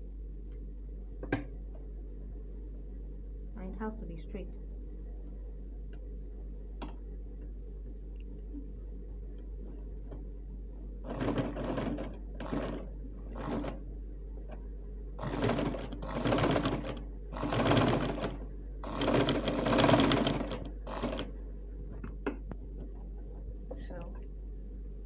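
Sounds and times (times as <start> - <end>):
sewing machine stitching: 11.0 - 13.8, 15.2 - 21.3.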